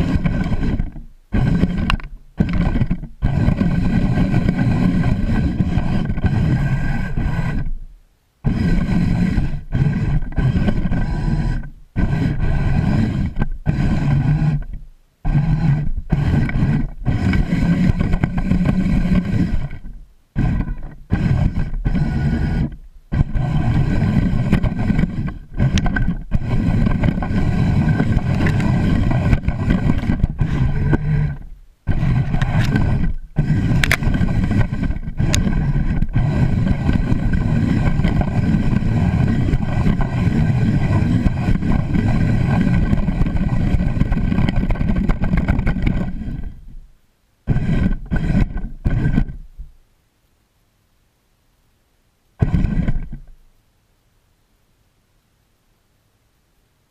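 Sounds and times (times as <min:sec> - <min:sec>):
robot electric motors running: 0:00.0 - 0:07.8, 0:08.4 - 0:46.8, 0:47.5 - 0:49.5, 0:52.4 - 0:53.3.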